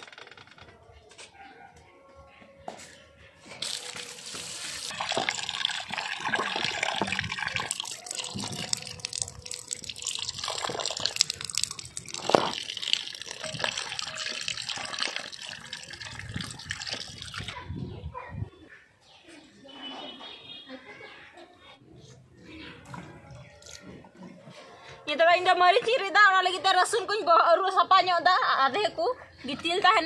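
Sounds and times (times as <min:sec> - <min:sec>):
tap water splashing into bowl: 0:05.0 - 0:17.5.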